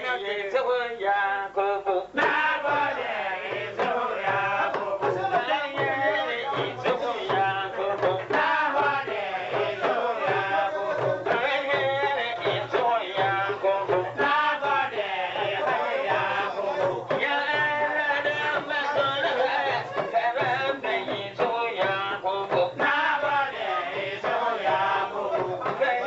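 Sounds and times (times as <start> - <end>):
man singing: 0.0 - 26.0
steady beat: 2.2 - 26.0.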